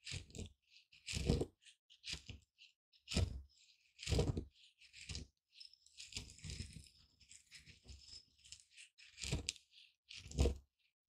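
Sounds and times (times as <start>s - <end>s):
pestle grinding seeds in mortar: 3.1s - 10.5s.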